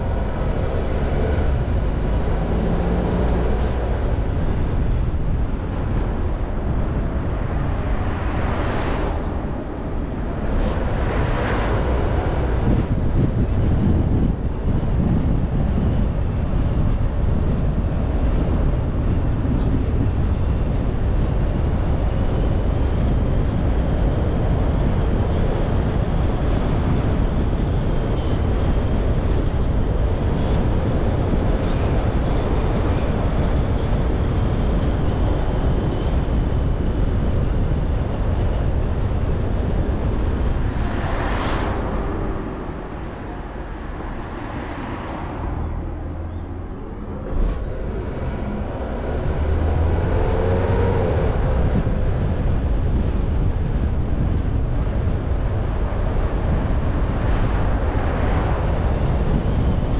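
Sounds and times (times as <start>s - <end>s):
car road and wind noise: 0.0s - 59.9s
brief whoosh: 40.2s - 49.7s.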